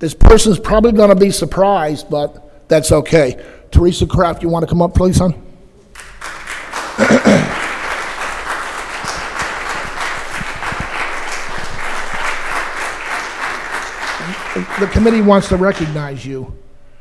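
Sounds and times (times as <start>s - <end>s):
audience applauding: 6.0s - 16.3s.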